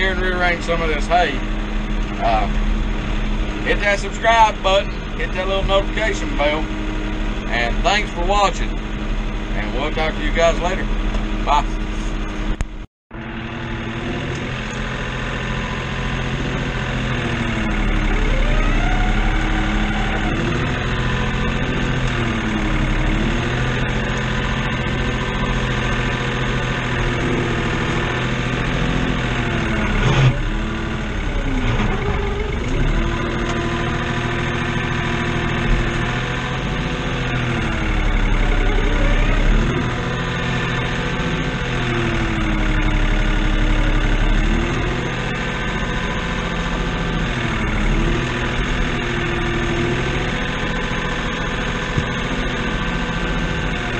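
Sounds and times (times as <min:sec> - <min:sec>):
tractor diesel engine running: 0:00.0 - 0:53.9
hydraulic whine rising and falling: 0:13.3 - 0:53.9.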